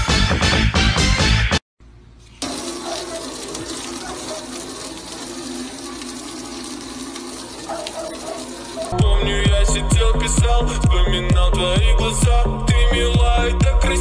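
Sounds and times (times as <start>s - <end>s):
hose water spraying on glass: 2.3s - 9.0s.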